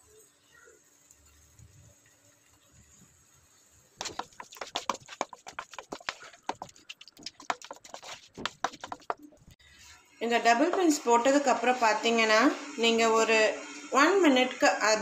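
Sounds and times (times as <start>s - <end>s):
wooden spatula scraping pan: 4.0s - 9.2s.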